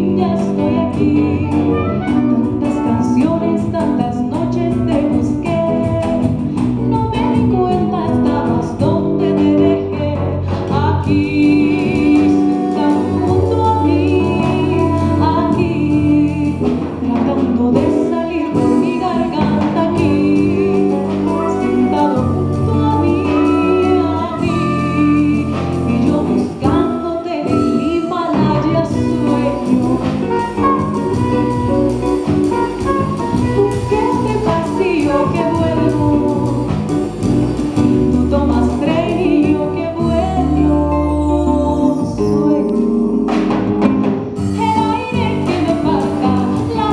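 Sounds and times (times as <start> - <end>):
acoustic guitar: 0.0 - 46.9
electric bass: 0.0 - 46.9
percussion: 0.0 - 46.9
woman singing: 0.0 - 46.9.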